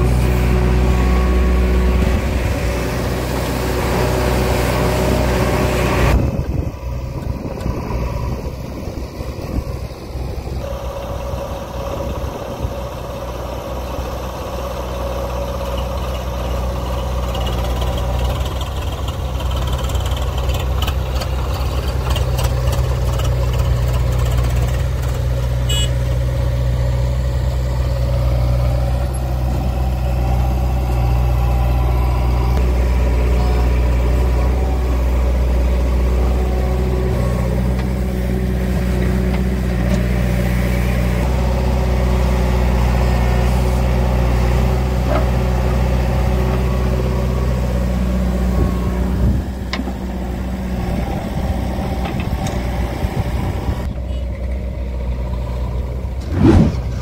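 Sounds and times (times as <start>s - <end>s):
diesel engines droning: 0.0s - 57.0s.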